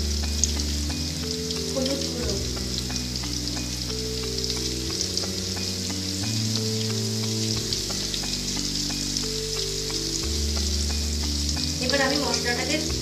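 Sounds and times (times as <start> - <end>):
potatoes sizzling in oil: 0.0 - 13.0.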